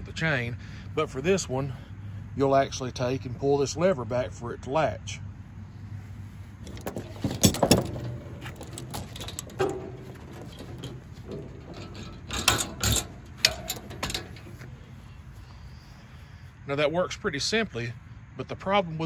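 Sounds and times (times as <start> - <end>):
chain clinking and rattling: 6.6 - 15.2
metal lever clanks: 6.6 - 15.2.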